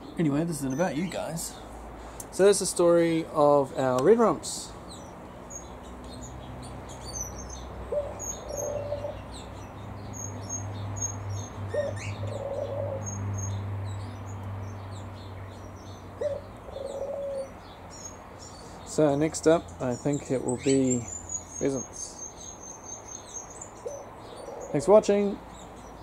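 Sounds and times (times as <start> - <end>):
small birds chirping: 0.0 - 26.0
dove cooing: 7.9 - 9.4, 11.7 - 13.2, 16.2 - 17.6, 23.8 - 25.1.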